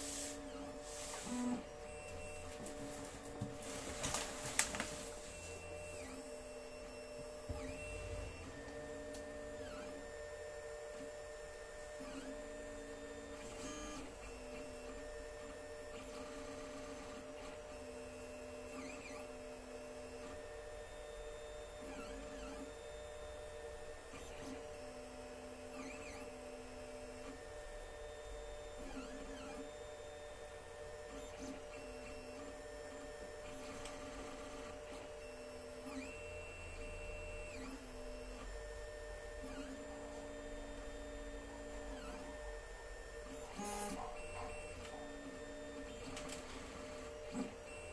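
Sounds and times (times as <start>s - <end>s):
cooling fans humming: 0.0s - 13.4s.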